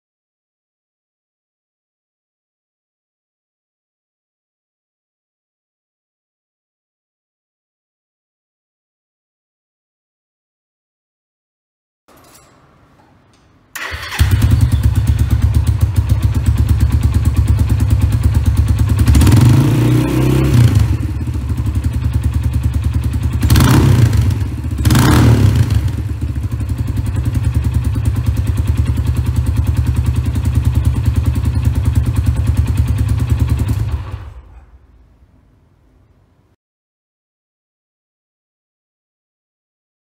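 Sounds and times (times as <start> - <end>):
motorcycle engine revving: 13.8 - 34.6.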